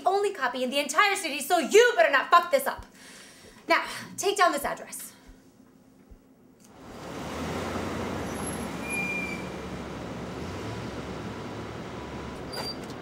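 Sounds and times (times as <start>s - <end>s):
passing vehicles: 6.7s - 13.0s.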